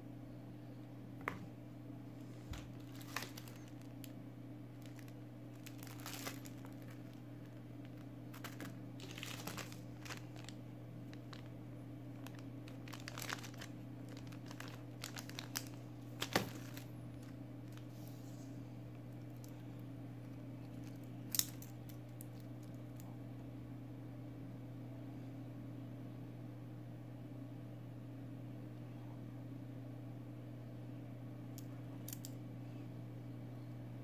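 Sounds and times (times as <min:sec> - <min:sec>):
low hum: 0:00.0 - 0:26.6
packaging crinkling: 0:02.2 - 0:18.1, 0:20.3 - 0:22.5.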